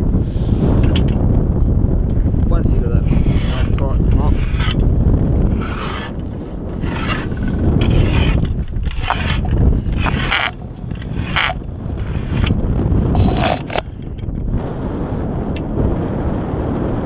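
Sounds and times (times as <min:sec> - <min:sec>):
wind rumbling on microphone: 0:00.0 - 0:17.0
rope and gear scraping: 0:03.0 - 0:14.0.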